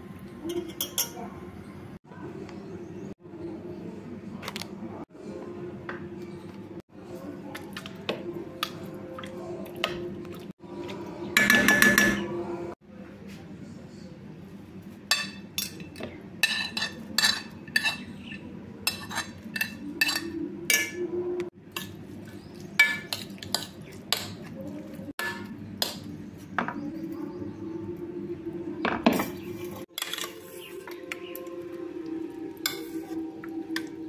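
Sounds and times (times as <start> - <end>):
spoon clinking and scraping pan: 0.4 - 1.2, 11.4 - 12.3, 15.1 - 21.0, 21.7 - 24.4, 25.2 - 26.1, 29.2 - 31.5, 32.6 - 33.2.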